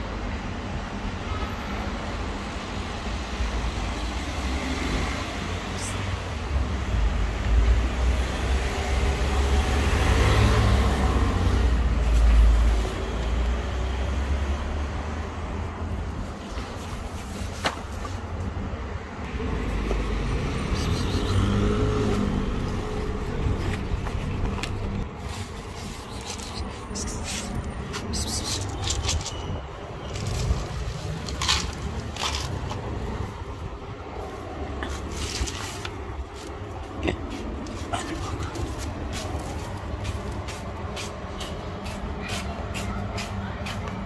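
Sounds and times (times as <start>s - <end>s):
street traffic noise: 0.0s - 44.0s
vehicle passing: 3.8s - 15.7s, 19.1s - 42.0s.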